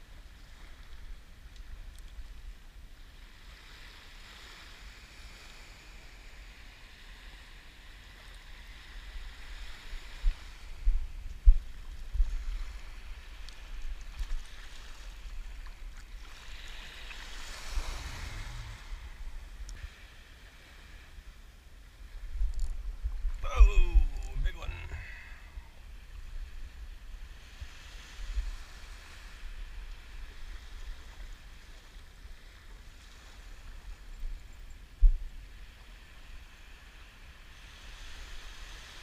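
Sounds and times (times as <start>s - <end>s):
small waves washing on beach: 0.0s - 39.0s
wind buffeting microphone: 8.9s - 20.2s.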